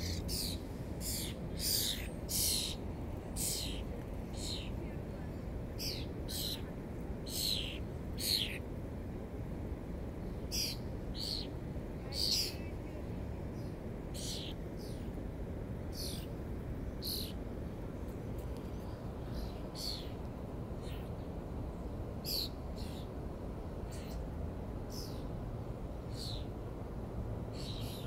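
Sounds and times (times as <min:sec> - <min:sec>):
bird chip calls: 0:00.0 - 0:02.8, 0:03.4 - 0:04.7, 0:05.8 - 0:06.6, 0:07.3 - 0:08.6, 0:10.5 - 0:11.5, 0:12.2 - 0:12.6, 0:14.2 - 0:15.0
steady low rumble: 0:00.0 - 0:28.0.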